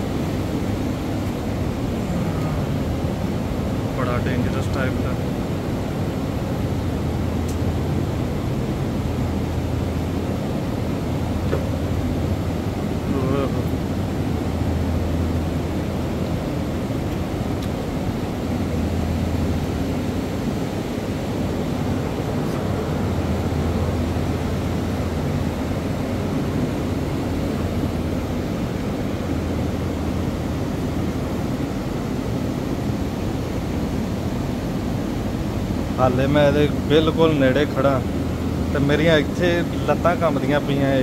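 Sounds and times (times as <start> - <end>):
low mechanical drone: 0.0 - 41.0.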